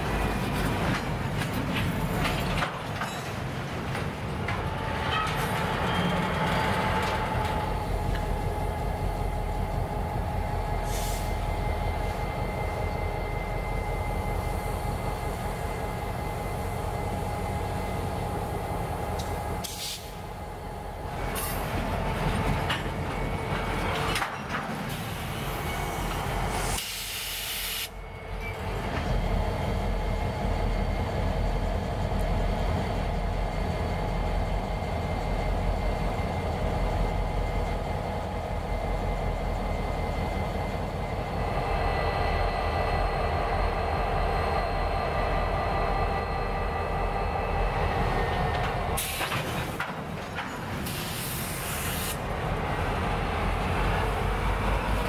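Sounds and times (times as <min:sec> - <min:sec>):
diesel locomotive running: 0:00.0 - 0:55.0
rumble of rolling freight cars: 0:00.0 - 0:55.0
loud air hiss: 0:10.8 - 0:11.4, 0:19.6 - 0:20.2, 0:26.5 - 0:28.0, 0:50.9 - 0:52.2.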